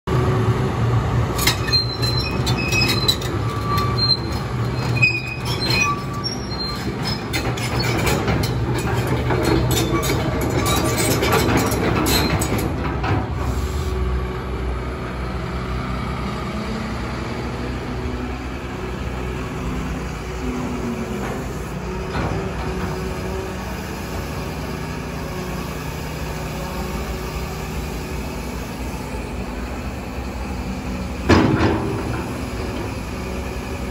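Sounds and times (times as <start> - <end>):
excavator diesel engine humming: 0.1 - 33.9
short high squeaks: 1.4 - 8.6
metal clanks: 31.3 - 33.0.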